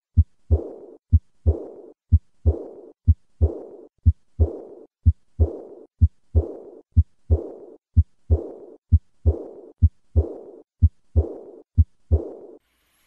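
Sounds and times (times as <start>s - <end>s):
heartbeat through stethoscope: 0.0s - 12.6s
heart murmur: 0.1s - 12.5s.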